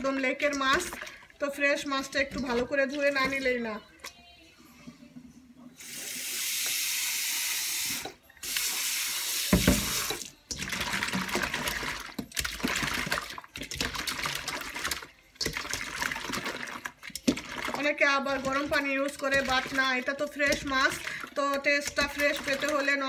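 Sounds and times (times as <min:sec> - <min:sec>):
tap water running into a bowl: 0:05.8 - 0:23.0.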